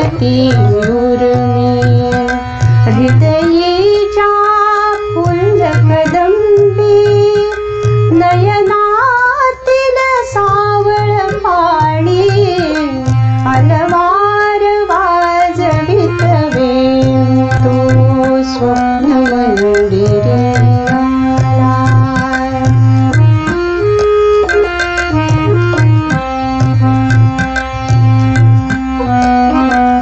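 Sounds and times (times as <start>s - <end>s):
percussion beat: 0.0s - 8.7s, 10.2s - 30.0s
woman singing: 0.0s - 22.8s.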